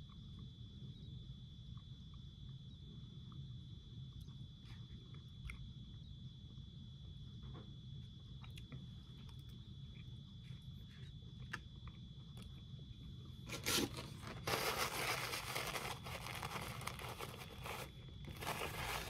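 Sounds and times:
faint small clicks: 8.4s - 9.6s
paper napkin crinkling: 13.5s - 19.0s.

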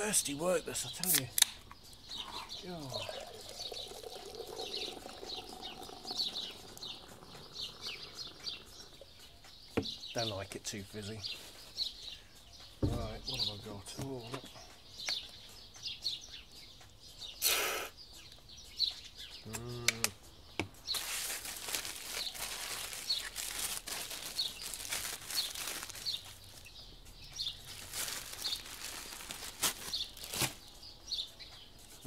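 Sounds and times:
small birds chirping: 0.0s - 32.0s
aluminium foil crinkling: 20.9s - 26.7s, 27.6s - 30.7s.

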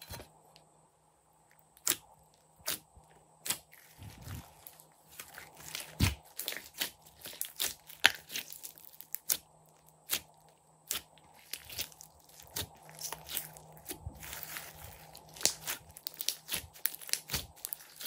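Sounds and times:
slime wet pops and crackles: 15.2s - 18.0s.

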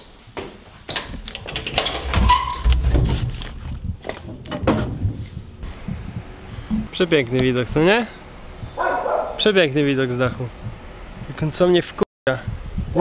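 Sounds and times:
knocks and scrapes of climbing: 0.3s - 7.6s
heavy handling rumble: 1.4s - 9.4s
dogs barking: 8.8s - 9.4s.

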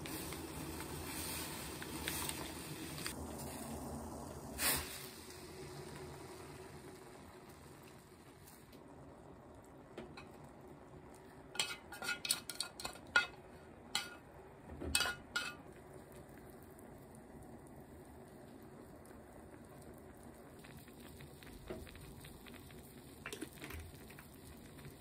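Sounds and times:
faint steady hiss: 0.0s - 25.0s
chopsticks and pan clinking on pot: 11.6s - 13.4s, 14.0s - 14.2s, 14.9s - 15.6s.

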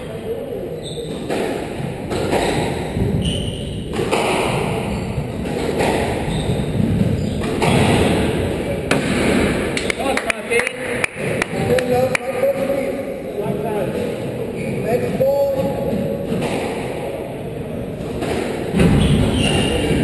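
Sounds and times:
squash ball hit by rackets: 1.1s - 9.9s, 18.0s - 20.0s.

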